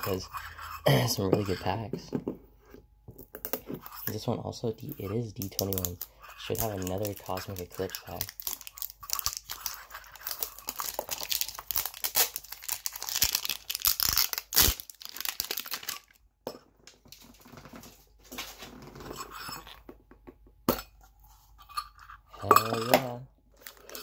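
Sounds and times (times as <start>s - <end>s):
packaging tearing and crinkling: 5.4s - 16.2s.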